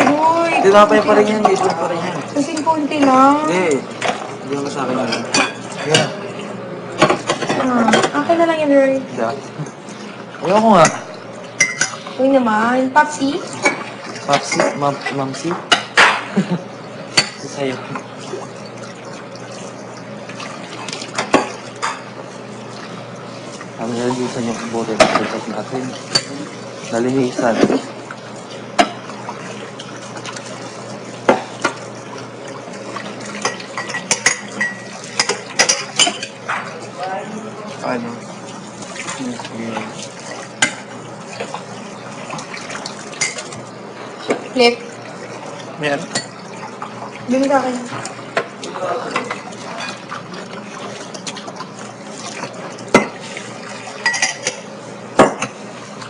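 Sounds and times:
dishes and utensils clinking: 0:04.0 - 0:06.2, 0:07.0 - 0:08.5, 0:09.6 - 0:12.2, 0:13.5 - 0:16.5, 0:17.1 - 0:18.1, 0:20.4 - 0:22.2, 0:24.2 - 0:28.0, 0:28.6 - 0:29.4, 0:33.0 - 0:36.9, 0:38.9 - 0:41.6, 0:42.3 - 0:44.5, 0:46.0 - 0:46.9, 0:47.8 - 0:51.6, 0:52.2 - 0:55.6
dishes and cutlery knocking: 0:24.9 - 0:25.4.

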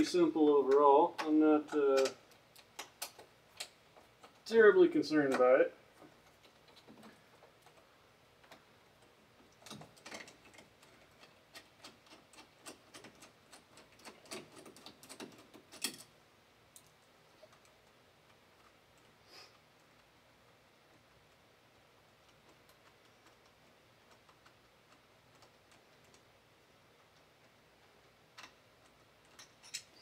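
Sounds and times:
door handle clicking and rattling: 0:09.6 - 0:16.1.

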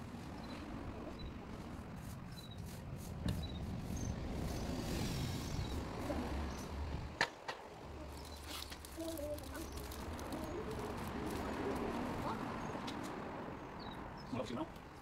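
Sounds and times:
wet rope hauled by hand: 0:08.1 - 0:13.1.

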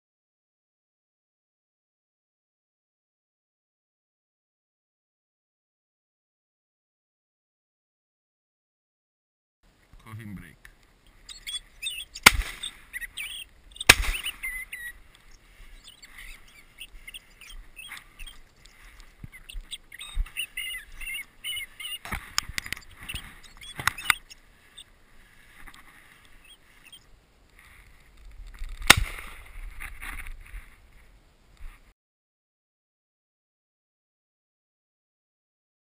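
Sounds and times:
small birds chirping: 0:10.0 - 0:30.0
faint sharp cracks: 0:12.0 - 0:20.8, 0:27.5 - 0:30.7
shotgun shots: 0:12.2 - 0:12.8, 0:13.8 - 0:14.6, 0:28.8 - 0:29.4.

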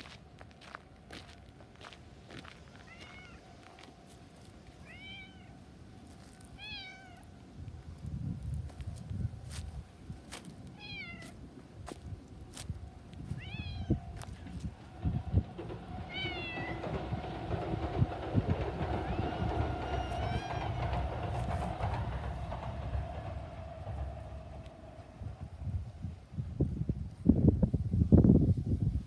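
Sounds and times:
wind rumbling on microphone: 0:00.0 - 0:29.0
cat meowing: 0:06.6 - 0:07.2, 0:10.8 - 0:11.3, 0:13.4 - 0:14.0, 0:16.1 - 0:16.7.

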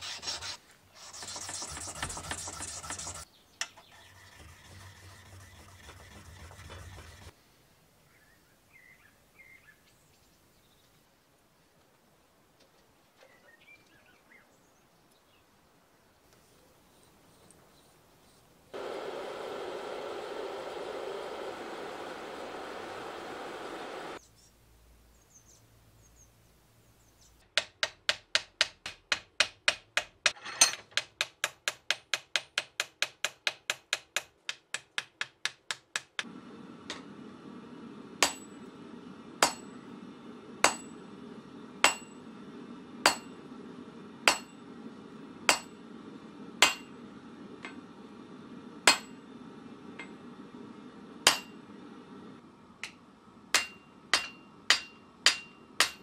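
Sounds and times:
hammer striking steel on anvil: 0:38.2 - 0:38.6, 0:39.4 - 0:39.8, 0:40.6 - 0:41.0, 0:41.8 - 0:42.3, 0:43.0 - 0:43.4, 0:44.2 - 0:44.6, 0:45.5 - 0:45.8, 0:46.6 - 0:47.0, 0:48.8 - 0:49.2, 0:51.2 - 0:51.6, 0:52.8 - 0:56.0.

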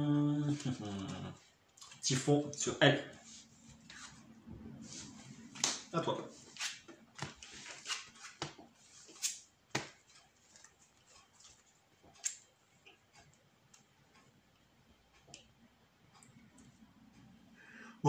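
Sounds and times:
cards clicking and tapping: 0:07.2 - 0:10.7.

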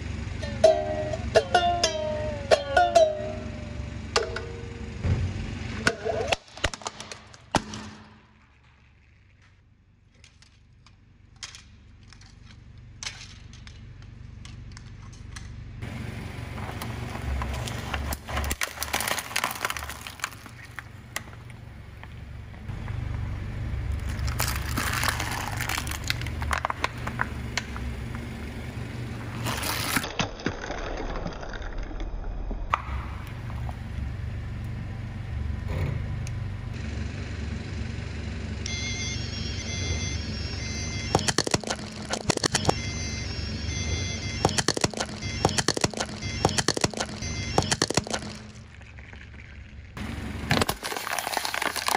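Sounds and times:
car engine running: 0:00.0 - 0:07.4, 0:10.8 - 0:30.1, 0:32.7 - 0:50.9
tire crushing brittle objects: 0:06.3 - 0:34.2, 0:40.6 - 0:43.4, 0:44.1 - 0:51.9
plastic pieces clicking: 0:41.2 - 0:42.8, 0:44.4 - 0:48.6.

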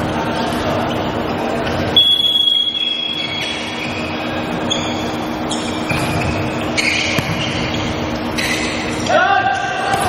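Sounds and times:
low hum of hall: 0:00.0 - 0:10.0
referee's whistle blast: 0:02.0 - 0:03.7
ball strike: 0:07.0 - 0:07.6.

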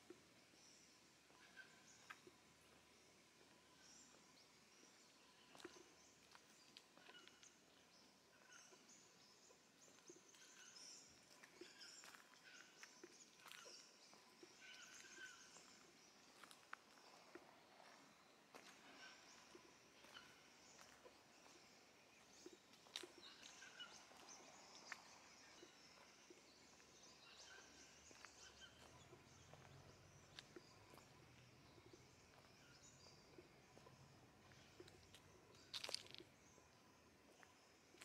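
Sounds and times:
footsteps on leaves: 0:35.1 - 0:36.2.

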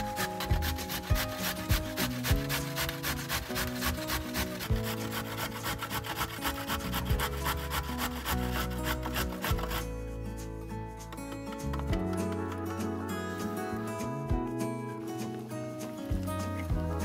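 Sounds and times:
carrot rasping on metal grater: 0:00.0 - 0:09.9
soft background music: 0:00.0 - 0:17.0.

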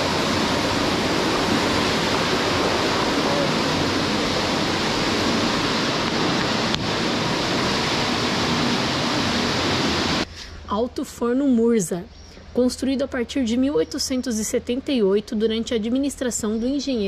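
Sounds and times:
steady rushing noise: 0:00.0 - 0:10.3.

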